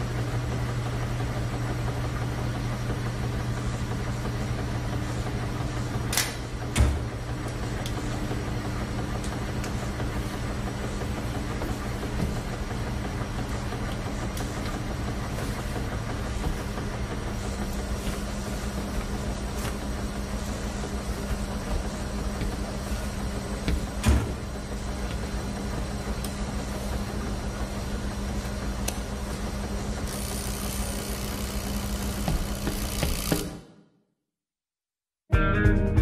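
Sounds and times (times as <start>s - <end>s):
washing machines humming and rumbling: 0.0s - 34.0s.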